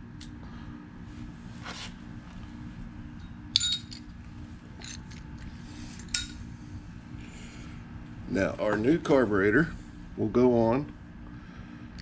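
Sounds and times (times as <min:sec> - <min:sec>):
low steady hum: 0:00.0 - 0:12.0
small metal pieces clinking: 0:03.6 - 0:04.1, 0:04.8 - 0:05.2.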